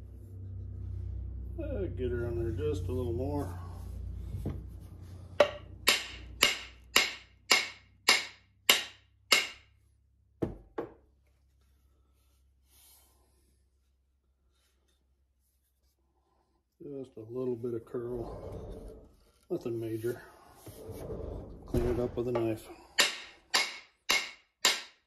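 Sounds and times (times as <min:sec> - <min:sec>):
hammer knocking wooden handle: 0:05.4 - 0:09.7, 0:23.0 - 0:25.0.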